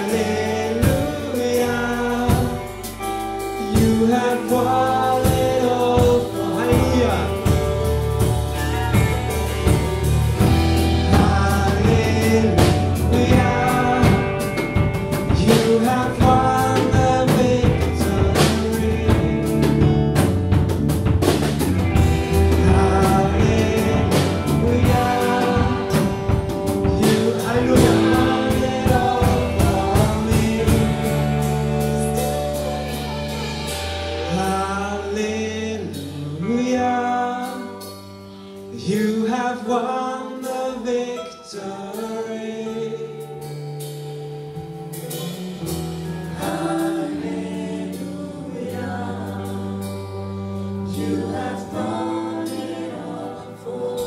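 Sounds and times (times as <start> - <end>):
bass guitar: 0.0 - 40.9, 41.9 - 54.0
acoustic guitar: 0.0 - 54.0
electric guitar: 0.0 - 54.0
woman singing: 11.1 - 14.6, 22.0 - 35.4, 46.4 - 54.0.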